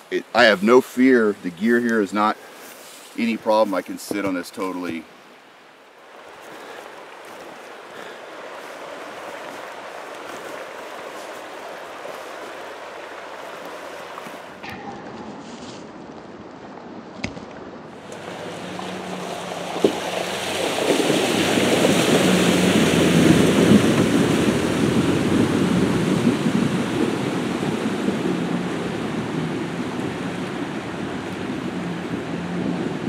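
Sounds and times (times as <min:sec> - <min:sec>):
water rushing and splashing: 0:00.0 - 0:33.0
low engine hum: 0:17.5 - 0:33.0.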